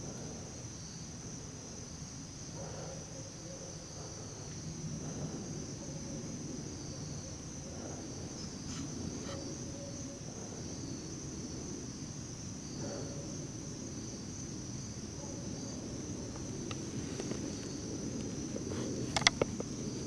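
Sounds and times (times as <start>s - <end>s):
insect chorus trilling: 0.0s - 20.0s.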